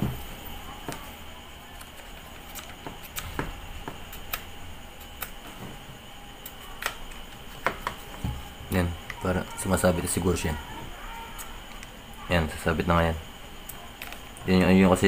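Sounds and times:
low steady background noise: 0:00.0 - 0:15.0.

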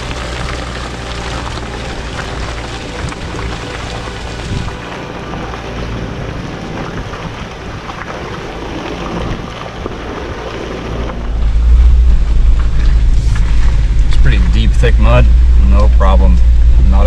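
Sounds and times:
loud deep rumble: 0:00.0 - 0:17.0
low engine hum: 0:00.0 - 0:17.0
tyres rushing through mud: 0:00.0 - 0:17.0.

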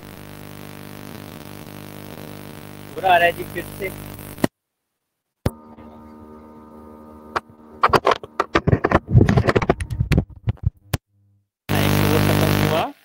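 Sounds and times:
microphone electrical buzzing hum: 0:00.0 - 0:04.5, 0:05.5 - 0:13.0
crackling and clicks: 0:04.2 - 0:04.6, 0:07.3 - 0:11.0.

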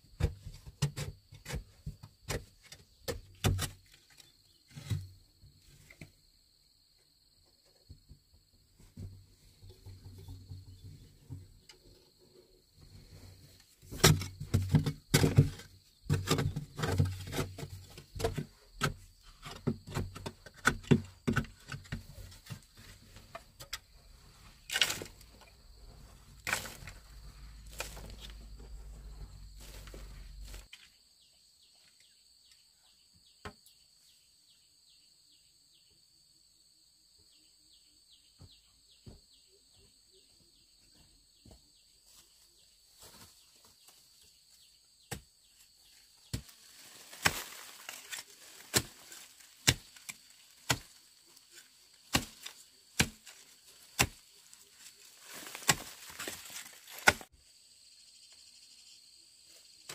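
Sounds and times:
insects chirping: 0:00.0 - 0:59.9
digging tool striking earth: 0:00.2 - 0:05.1, 0:13.9 - 0:23.9, 0:24.6 - 0:28.7, 0:46.2 - 0:51.1, 0:52.0 - 0:57.3.

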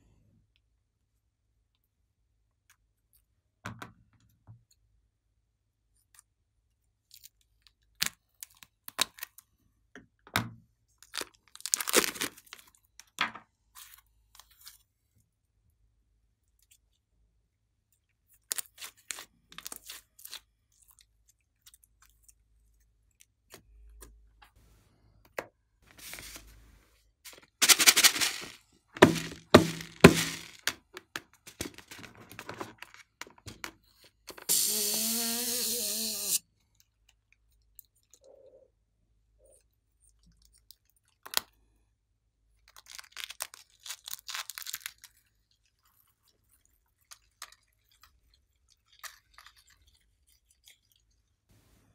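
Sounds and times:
slime crackles and squishes: 0:11.0 - 0:12.9, 0:42.6 - 0:51.5
balloon hissing and squealing: 0:34.4 - 0:36.4.

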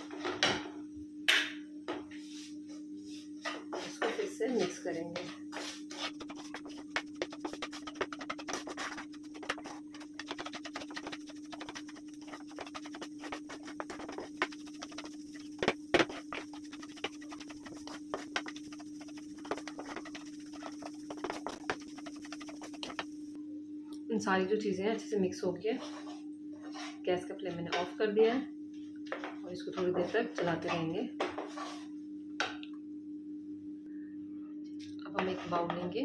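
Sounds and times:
steady low hum: 0:00.0 - 0:36.0
spatula scraping metal pan: 0:03.9 - 0:23.1.

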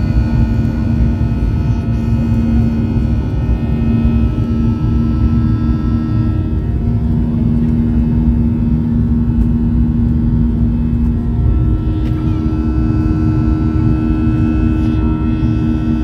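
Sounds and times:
higher hum: 0:00.0 - 0:16.0
jet engine and airflow rumble: 0:00.0 - 0:16.0
steady engine hum: 0:00.0 - 0:16.0.

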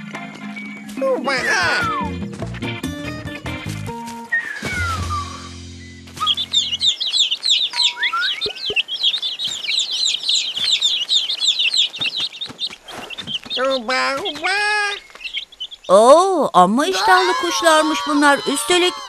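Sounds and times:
cartoon baby birds cheeping: 0:01.0 - 0:03.4, 0:04.3 - 0:19.0
falling whistle: 0:04.2 - 0:06.6.

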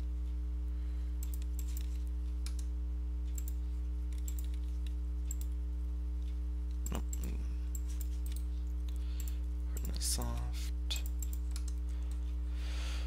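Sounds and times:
low hum: 0:00.0 - 0:13.0
keyboard keys clicking: 0:03.3 - 0:05.6, 0:11.0 - 0:12.2.

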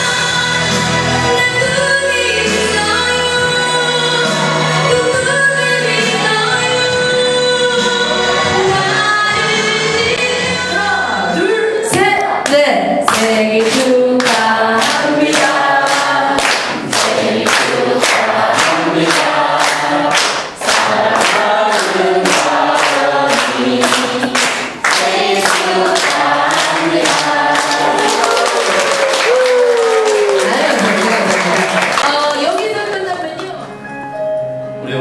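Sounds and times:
people clapping in time: 0:12.4 - 0:33.8
group of people singing: 0:13.2 - 0:29.0.

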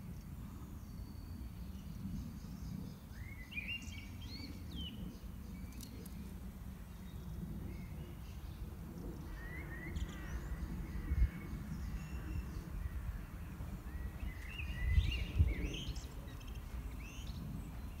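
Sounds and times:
songbirds chirping: 0:00.0 - 0:18.0
steady low rumble: 0:03.9 - 0:18.0.

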